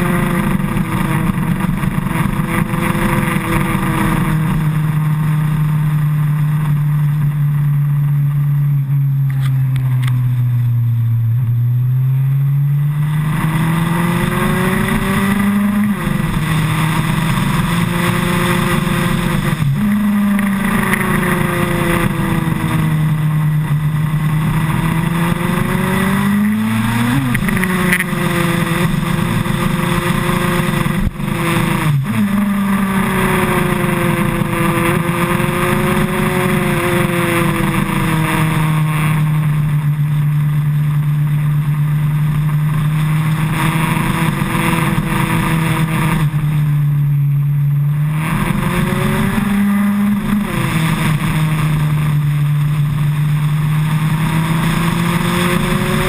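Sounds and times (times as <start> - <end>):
motorcycle engine revving: 0.0 - 56.0
wind rushing over microphone: 12.9 - 39.2.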